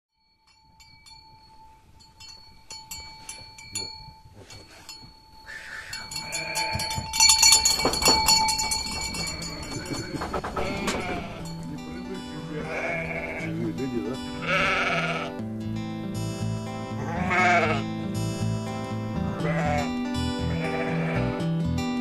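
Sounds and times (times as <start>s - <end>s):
ringing bell-like tone: 0.1s - 12.7s
light clinks: 0.2s - 11.8s
sheep bleating: 6.1s - 6.9s, 9.0s - 15.4s, 16.8s - 18.1s, 18.9s - 21.5s.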